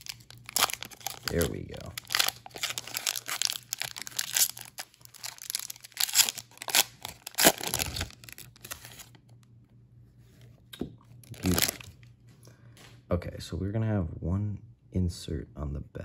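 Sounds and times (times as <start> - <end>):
foil wrapper tearing and crinkling: 0.0 - 9.2, 11.3 - 11.9.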